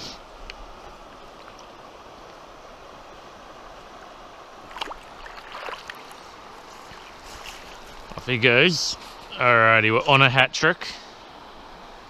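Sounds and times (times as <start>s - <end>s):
river water running: 0.0s - 12.0s
sharp water splashes: 4.6s - 6.3s.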